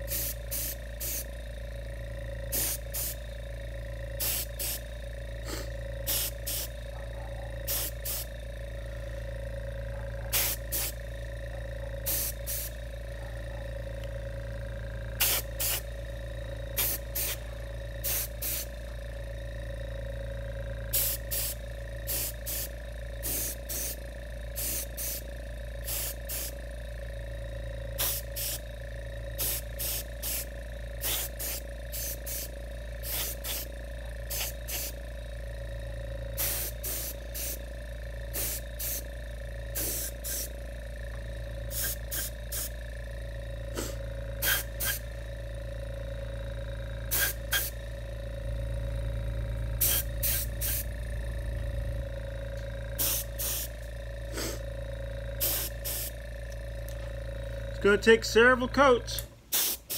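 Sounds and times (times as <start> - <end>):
spray gun hissing bursts: 0.0 - 1.3, 2.5 - 3.2, 4.2 - 6.8, 7.7 - 8.3, 10.3 - 11.0, 12.0 - 12.8, 15.2 - 16.0, 16.7 - 18.8, 20.9 - 26.6, 28.0 - 28.6, 29.4 - 35.0, 36.4 - 37.6, 38.3 - 39.1, 39.7 - 40.5, 41.7 - 42.8, 43.6 - 45.1, 47.1 - 47.8, 49.8 - 51.0, 52.9 - 54.7, 55.3 - 56.7, 59.5 - 59.9
steady hum: 0.0 - 59.9.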